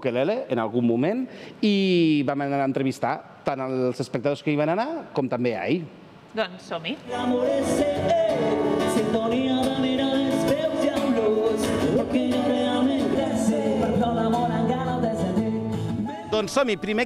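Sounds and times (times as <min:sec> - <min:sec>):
person singing: 0:07.1 - 0:17.0.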